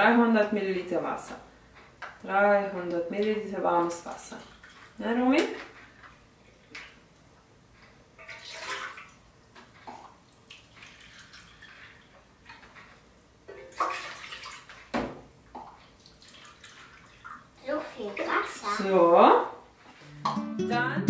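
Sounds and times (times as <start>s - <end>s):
water pouring into plastic cup: 10.0s - 12.2s.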